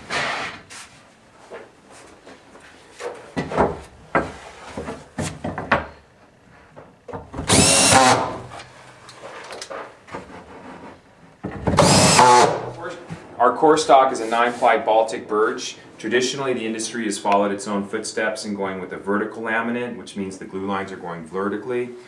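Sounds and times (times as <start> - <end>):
cordless drill whine: 7.5 - 8.5, 11.8 - 12.7.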